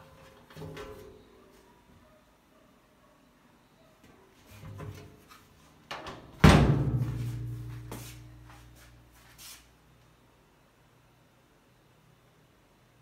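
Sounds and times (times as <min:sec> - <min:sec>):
loud bang on washing machine: 0:06.4 - 0:07.9.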